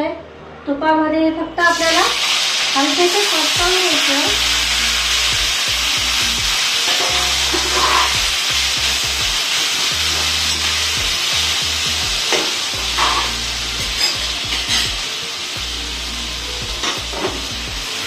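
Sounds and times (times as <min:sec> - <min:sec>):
vegetables sizzling in oil: 0:01.7 - 0:18.0
spatula scraping a pan: 0:06.9 - 0:08.2, 0:12.3 - 0:14.9.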